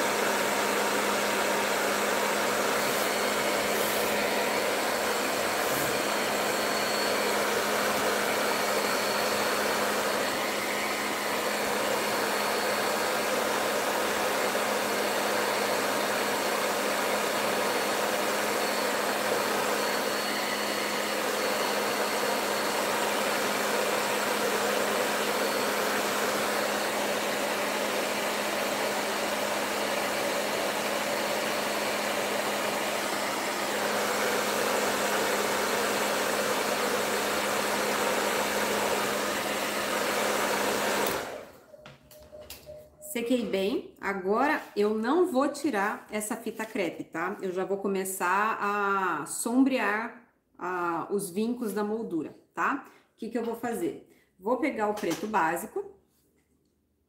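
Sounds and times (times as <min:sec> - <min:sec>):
hair dryer blowing: 0:00.0 - 0:41.8.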